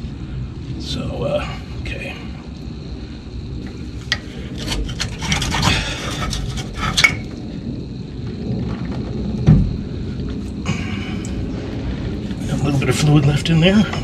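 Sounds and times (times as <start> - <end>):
metal clicks and scraping: 4.1 - 7.4.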